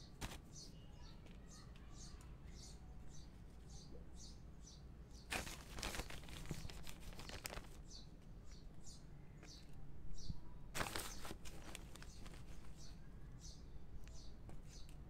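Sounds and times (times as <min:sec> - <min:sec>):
plastic bag crinkling: 0:05.3 - 0:07.9, 0:10.8 - 0:12.8.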